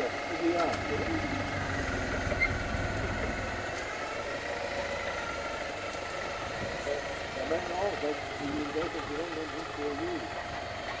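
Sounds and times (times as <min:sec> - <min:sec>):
forklift engine running: 0:00.0 - 0:11.0.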